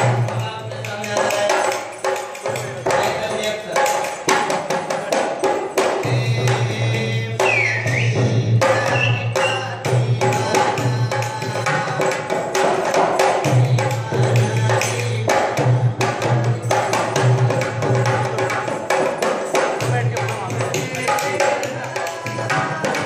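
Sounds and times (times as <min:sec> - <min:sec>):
folk music with hand drums: 0:00.0 - 0:23.0
high whistling tone: 0:07.4 - 0:09.8.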